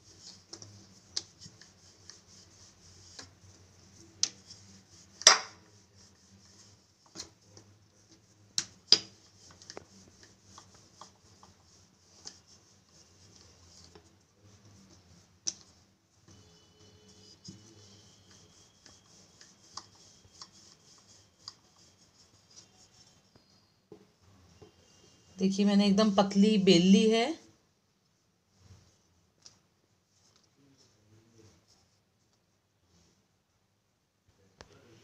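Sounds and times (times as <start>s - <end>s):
rolling pin rolling dough: 0.0s - 24.7s.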